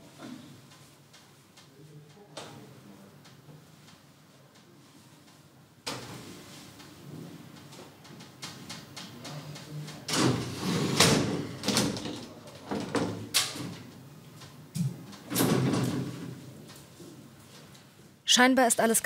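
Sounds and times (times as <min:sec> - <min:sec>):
sliding glass door on track: 0:10.0 - 0:14.0, 0:15.1 - 0:16.7
door panels scraping and knocking: 0:10.1 - 0:13.9.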